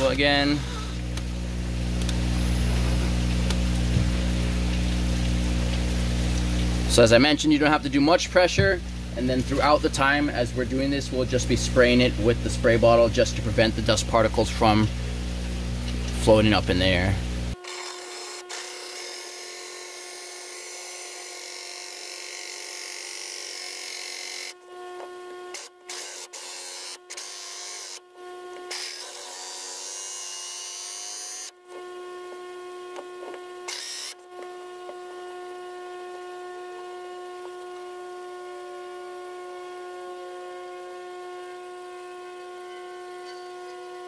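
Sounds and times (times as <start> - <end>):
cordless drill motor whine: 0.0 - 5.1, 16.7 - 44.0.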